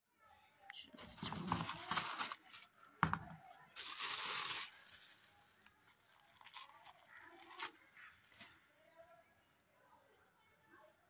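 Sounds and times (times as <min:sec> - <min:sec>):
plastic and paper crinkling: 0:01.0 - 0:09.0
knock: 0:03.0 - 0:03.4.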